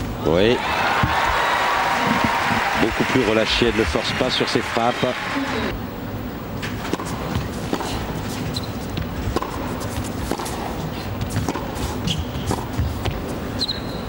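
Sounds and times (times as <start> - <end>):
tennis racket striking ball: 6.8 - 13.2
tennis shoes squeaking on court: 6.9 - 14.0.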